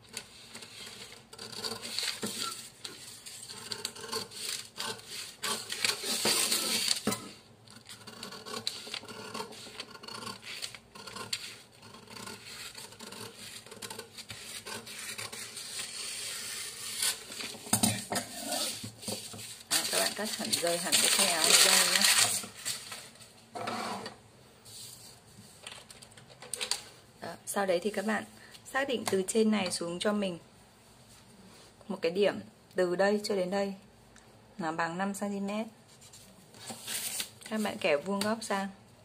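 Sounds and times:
paper rustling and scraping: 0:00.1 - 0:24.1, 0:35.9 - 0:37.8
scissors snipping paper: 0:07.7 - 0:15.9.

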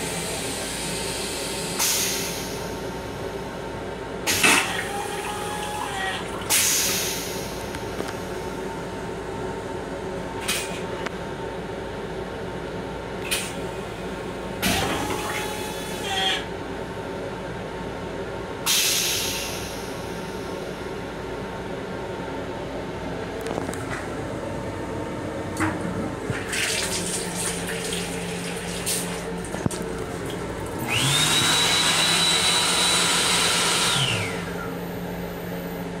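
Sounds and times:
vacuum toilet flushing: 0:04.3 - 0:07.8, 0:14.6 - 0:16.3, 0:25.6 - 0:34.9
hand dryer whining: 0:26.5 - 0:34.7.

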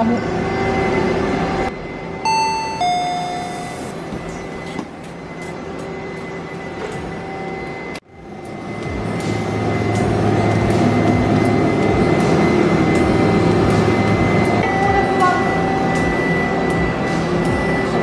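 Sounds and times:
machine humming: 0:00.0 - 0:18.0
two-note descending chime: 0:02.2 - 0:04.0.

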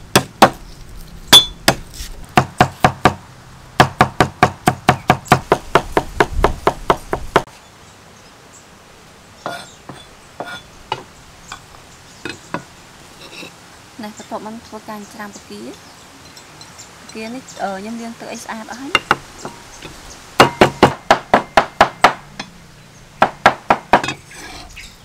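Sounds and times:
cleaver chopping on wooden block: 0:00.1 - 0:00.6, 0:01.4 - 0:03.2, 0:03.8 - 0:07.5, 0:20.4 - 0:22.5, 0:23.2 - 0:24.2.

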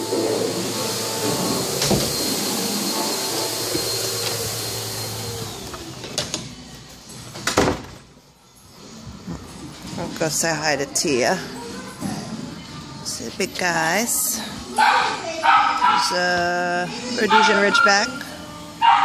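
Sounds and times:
ventilation machine hiss and whine: 0:00.0 - 0:08.0.

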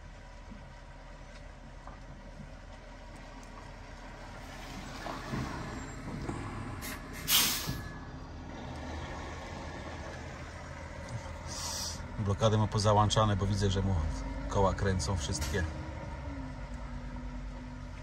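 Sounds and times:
truck diesel engine under load: 0:00.0 - 0:18.0
air brakes hissing: 0:06.4 - 0:08.0, 0:11.5 - 0:12.0.

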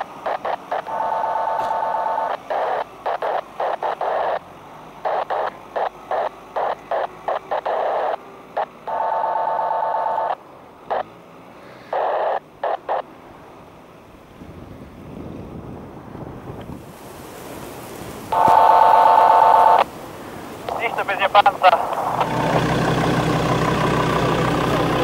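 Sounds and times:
radio static hiss bursts: 0:00.0 - 0:13.2, 0:16.7 - 0:23.3
steady buzzing tone: 0:05.0 - 0:11.1, 0:18.3 - 0:19.9.

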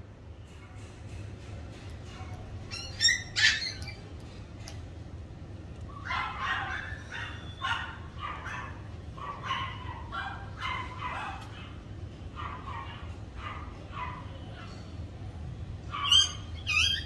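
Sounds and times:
puppy squeaking and yipping: 0:02.6 - 0:04.2, 0:05.9 - 0:08.7, 0:15.9 - 0:17.0.

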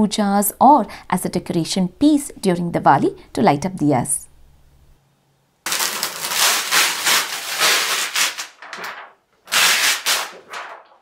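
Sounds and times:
plastic cutting mat rustling: 0:05.7 - 0:11.0.

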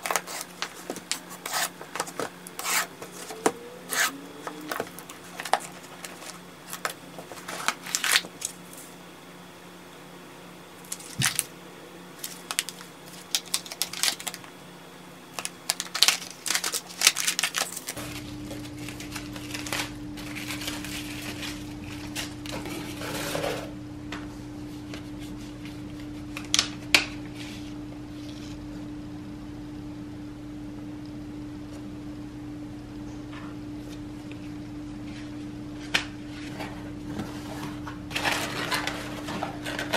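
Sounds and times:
crinkly paper filler: 0:00.0 - 0:03.3, 0:04.7 - 0:08.8, 0:12.2 - 0:14.5, 0:15.3 - 0:23.7, 0:35.9 - 0:39.9
low steady hum: 0:00.0 - 0:39.9.

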